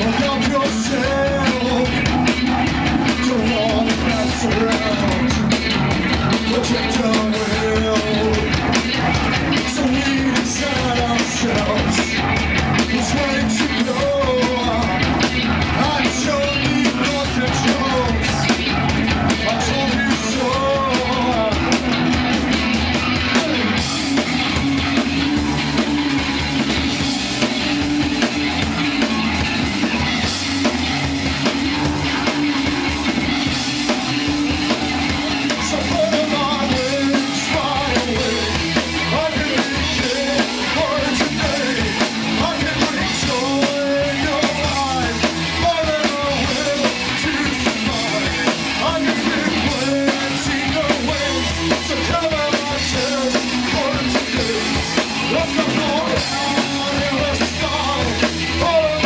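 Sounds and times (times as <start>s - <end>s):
man singing into microphone: 0.0s - 2.0s, 3.1s - 5.5s, 6.3s - 8.6s, 9.5s - 12.2s, 12.8s - 15.0s, 15.7s - 18.5s, 19.3s - 21.8s, 35.3s - 59.0s
bass guitar: 0.0s - 59.0s
drum kit: 0.0s - 59.0s
electric guitar: 0.0s - 59.0s.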